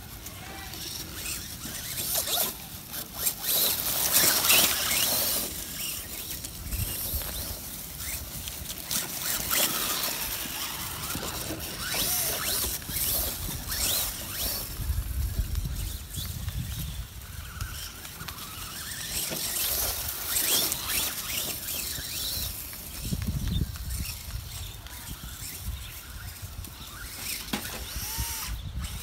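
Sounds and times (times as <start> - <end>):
rc truck tyres crackling through leaves: 0.0 - 29.0
high squeaks: 0.3 - 14.6.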